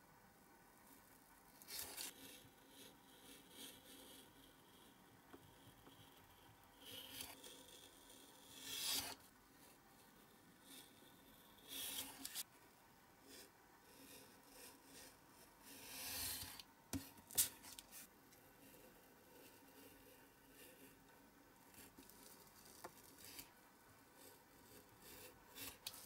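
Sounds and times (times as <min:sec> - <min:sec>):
knife scraping through card: 0:01.6 - 0:04.2, 0:06.9 - 0:09.2, 0:21.7 - 0:23.5.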